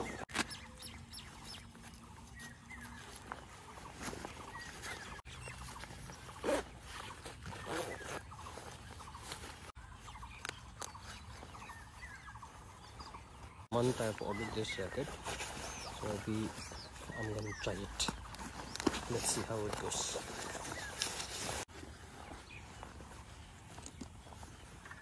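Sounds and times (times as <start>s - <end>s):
jacket rustling and clicking: 0.0s - 13.6s, 14.4s - 25.0s.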